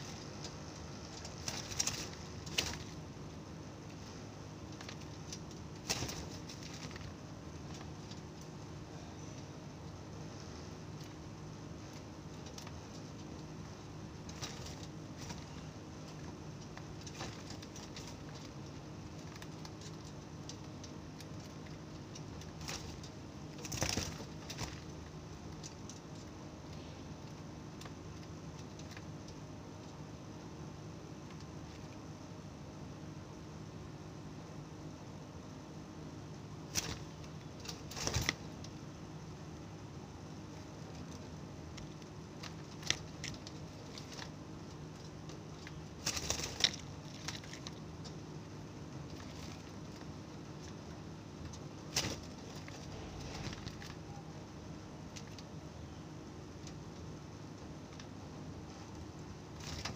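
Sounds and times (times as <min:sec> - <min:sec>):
bird rustling on perch: 0:00.0 - 0:03.0, 0:51.8 - 0:54.1
clicks and rustling: 0:00.0 - 0:03.0, 0:40.5 - 0:48.2
doves moving in a wire cage: 0:00.0 - 0:59.9
faint steady hum: 0:00.0 - 0:59.9.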